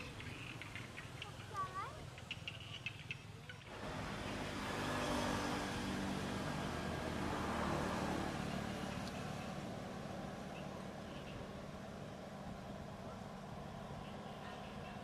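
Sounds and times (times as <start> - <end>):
vehicle engine passing by: 2.6 - 15.0.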